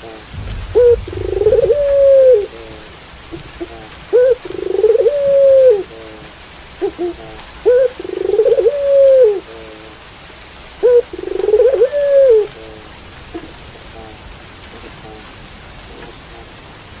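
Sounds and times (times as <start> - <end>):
steady rain hissing: 0.0 - 17.0
dove cooing: 0.8 - 2.5, 4.1 - 6.2, 6.8 - 9.6, 10.8 - 12.6.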